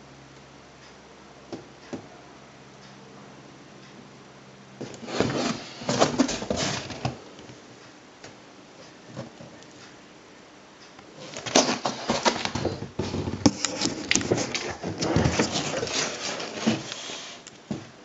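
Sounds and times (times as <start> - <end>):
cardboard box scraping and knocking: 4.8 - 7.2, 11.2 - 17.3.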